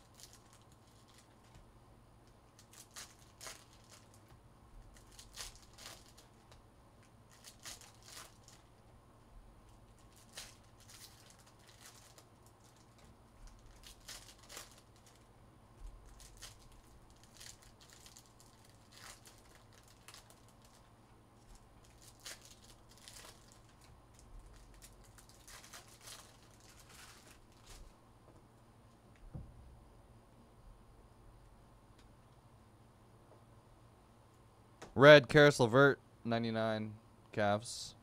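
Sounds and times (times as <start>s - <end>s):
foil wrappers crinkling and tearing: 0.0s - 1.6s, 2.2s - 8.8s, 9.7s - 28.0s.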